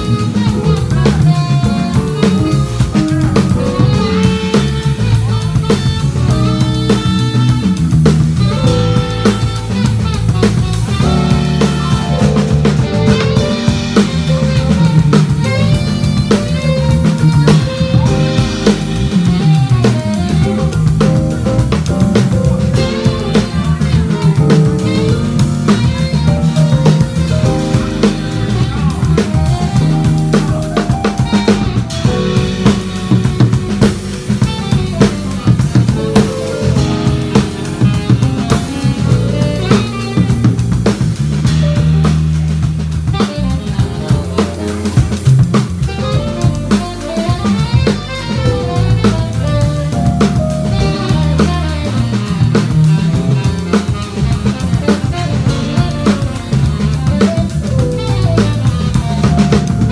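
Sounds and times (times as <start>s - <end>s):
drum kit: 0.0s - 59.9s
live band playing funk: 0.0s - 59.9s.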